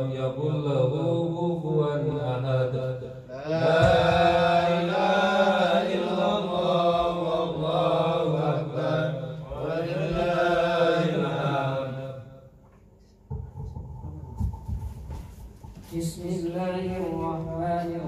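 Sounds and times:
man chanting into a microphone: 0:00.0 - 0:12.2, 0:15.9 - 0:18.0.

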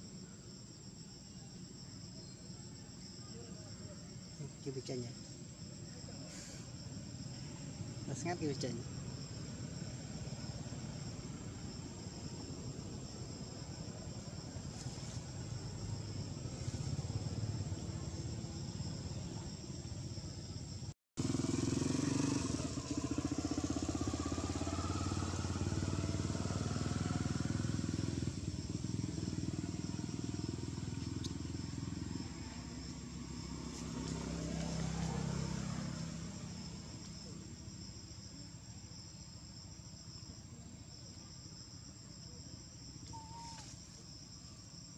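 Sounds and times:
vehicle engine passing: 0:06.2 - 0:20.2, 0:21.2 - 0:38.1.

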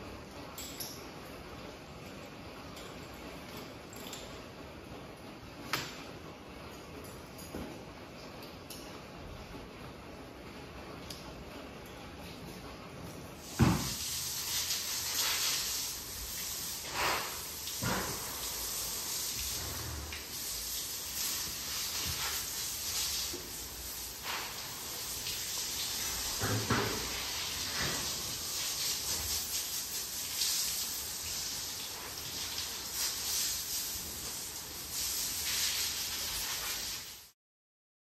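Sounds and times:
water spraying from hose: 0:13.4 - 0:37.4.

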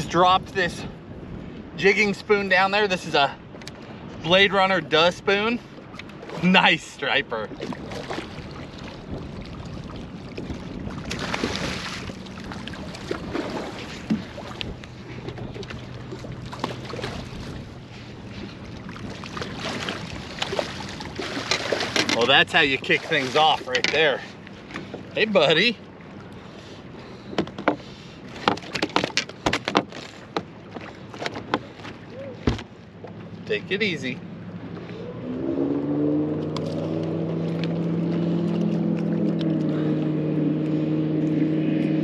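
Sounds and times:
water slapping against boat hull: 0:05.7 - 0:06.7, 0:07.4 - 0:25.3, 0:27.2 - 0:33.5, 0:36.4 - 0:39.8
wind on microphone: 0:07.5 - 0:22.1
net frame and tackle rattling: 0:21.2 - 0:24.2.

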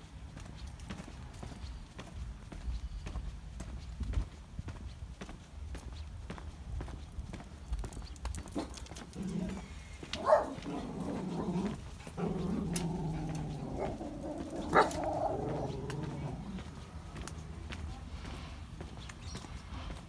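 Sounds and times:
footsteps on brick path: 0:00.0 - 0:20.0
animal growling and whining: 0:10.6 - 0:16.6.

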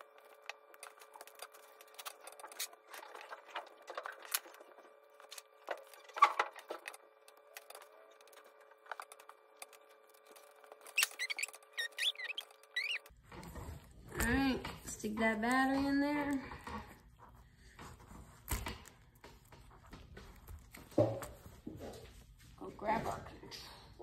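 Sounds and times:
high squeaks: 0:10.3 - 0:13.1.

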